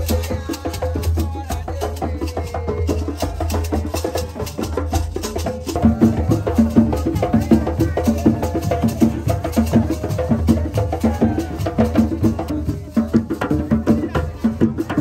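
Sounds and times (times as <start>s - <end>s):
hand drums playing dance rhythm: 0.0s - 15.0s.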